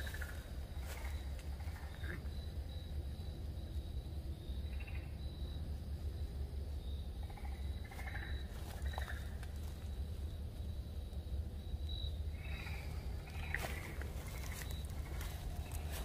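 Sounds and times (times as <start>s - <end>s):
short frog calls: 0.0s - 3.3s, 4.4s - 5.5s, 7.0s - 9.5s, 10.9s - 16.0s
pulsing insect trill: 0.0s - 16.0s
steady low rumble: 0.0s - 16.0s.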